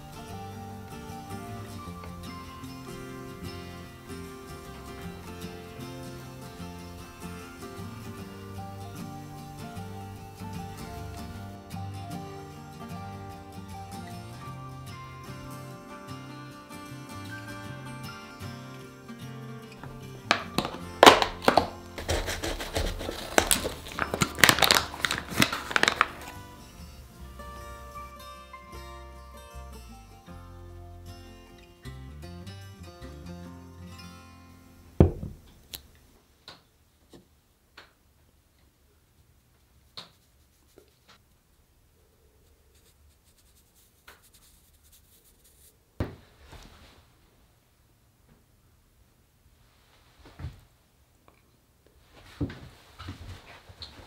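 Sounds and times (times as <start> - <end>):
soft background music: 0.0 - 22.0, 23.3 - 35.3
cardboard box opening: 20.3 - 26.4
foil pouch crinkling: 20.3 - 26.5
powder being dusted rustling: 20.6 - 27.1, 39.8 - 41.2, 42.4 - 47.2.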